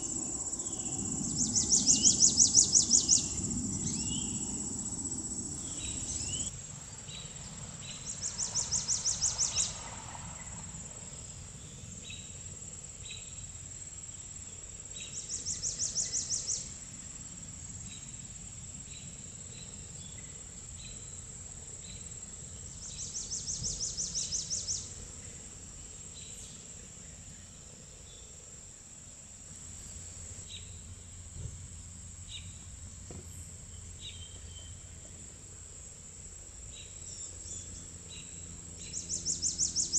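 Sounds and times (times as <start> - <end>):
pulsing insect trill: 0.0 - 9.8, 10.4 - 31.3, 33.7 - 39.9
high-pitched insect whine: 0.0 - 39.9
bird chirps: 0.2 - 4.6.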